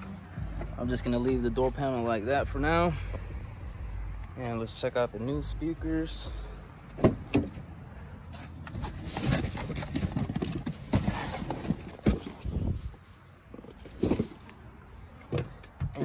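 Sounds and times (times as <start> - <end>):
cardboard box rummaging: 8.7 - 12.8, 13.6 - 14.5.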